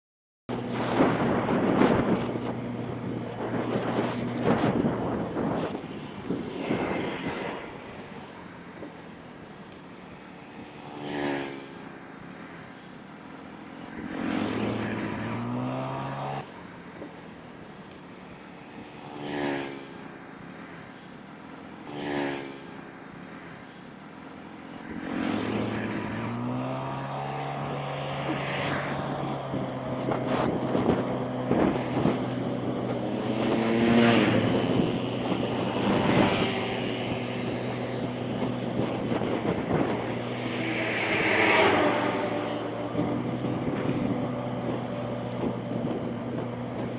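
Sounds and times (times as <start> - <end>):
wind noise: 0.5 - 9.6, 24.8 - 46.9
motorbike engine: 0.5 - 46.9
vehicles passing by: 0.5 - 46.9.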